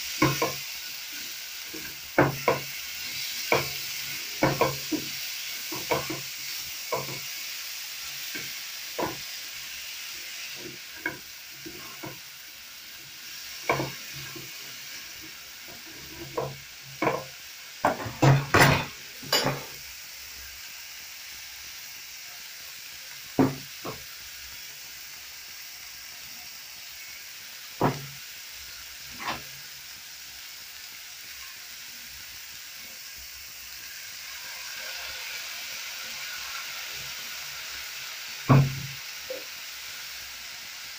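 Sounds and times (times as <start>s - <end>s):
spatula scraping a pan: 0.0s - 7.5s, 8.1s - 9.6s, 10.3s - 12.3s, 13.5s - 19.8s, 29.0s - 29.5s
stir-fry sizzling in a pan: 0.0s - 40.9s
knocks on a pan: 2.2s - 2.7s, 4.4s - 5.1s, 5.7s - 6.2s, 8.4s - 9.2s, 16.4s - 19.7s, 23.4s - 24.0s, 27.8s - 28.2s, 38.5s - 39.0s.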